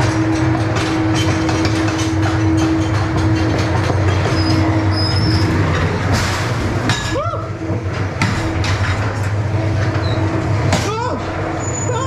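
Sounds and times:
ride car rumbling on track: 0.0 - 12.0
rising and falling squeal: 4.3 - 5.7.

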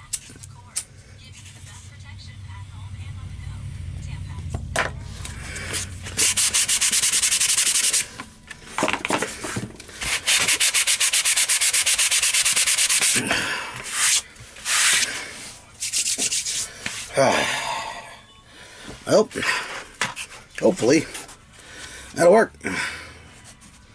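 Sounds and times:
sanding block rubbing foam: 5.7 - 8.1, 10.0 - 13.2, 13.8 - 17.1.

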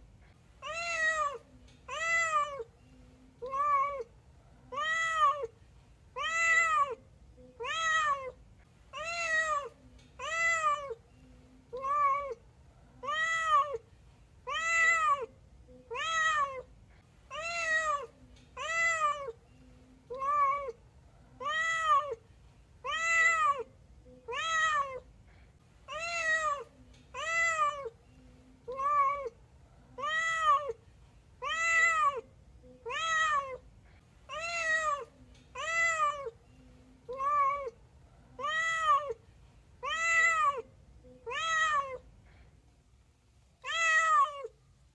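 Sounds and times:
cat meowing: 0.6 - 2.7, 3.4 - 4.1, 4.7 - 5.5, 6.2 - 7.0, 7.6 - 8.4, 9.0 - 11.0, 11.7 - 12.4, 13.0 - 13.8, 14.4 - 15.3, 15.9 - 16.7, 17.3 - 19.4, 20.1 - 20.8, 21.4 - 22.2, 22.8 - 25.1, 25.9 - 27.9, 28.7 - 30.8, 31.4 - 33.6, 34.3 - 36.4, 37.1 - 39.2, 39.8 - 42.0, 43.6 - 44.6.

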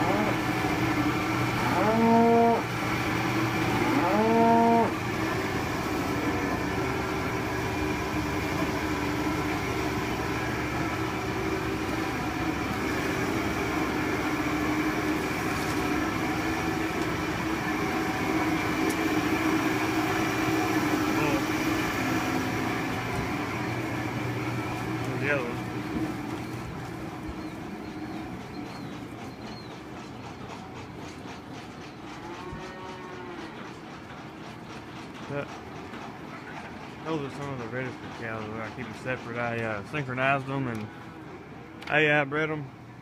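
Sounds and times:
cattle mooing: 0.0 - 0.5, 1.5 - 2.7, 3.6 - 5.0, 32.2 - 33.6
steady mechanical hum: 0.0 - 43.0.

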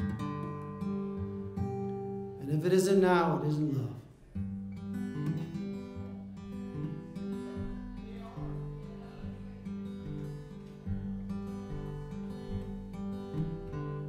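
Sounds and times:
acoustic blues guitar: 0.0 - 14.0.

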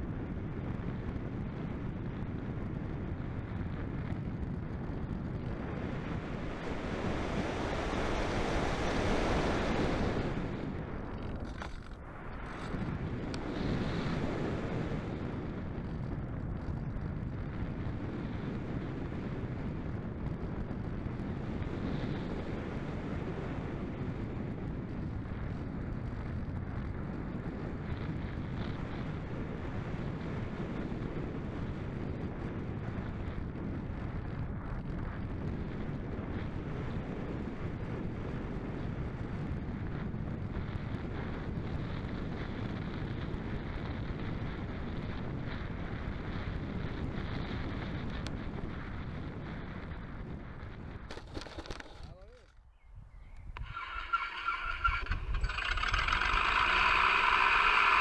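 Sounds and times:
wind noise on microphone: 0.0 - 58.0.

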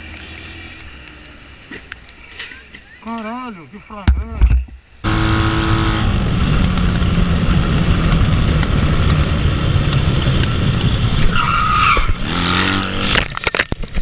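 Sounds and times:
motorcycle engine running: 5.0 - 11.2
tyre squeal: 11.2 - 13.2.

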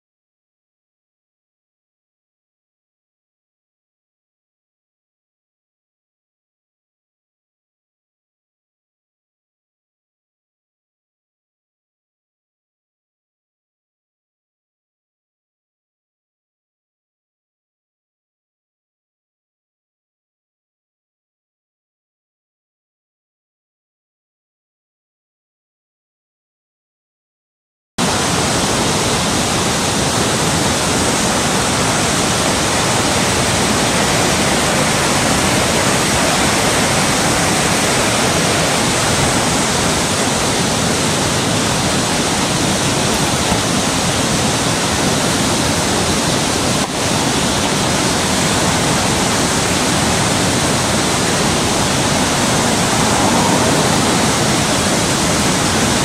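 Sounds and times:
river rushing through rapids: 28.0 - 56.0.

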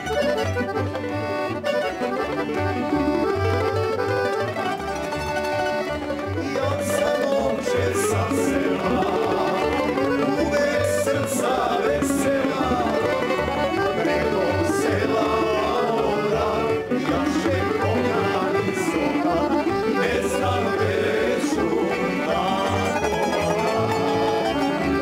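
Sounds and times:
accordion: 0.0 - 25.0
plucked bass: 0.0 - 25.0
plucked string instruments: 0.0 - 25.0
man singing: 6.4 - 25.0.

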